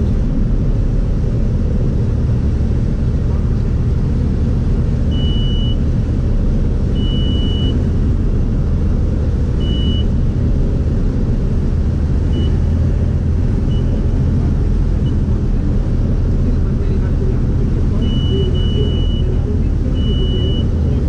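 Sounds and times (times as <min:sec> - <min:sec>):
aircraft engine and propeller droning: 0:00.0 - 0:21.0
high-pitched warning beep: 0:05.1 - 0:05.8, 0:06.9 - 0:07.8, 0:17.9 - 0:20.8.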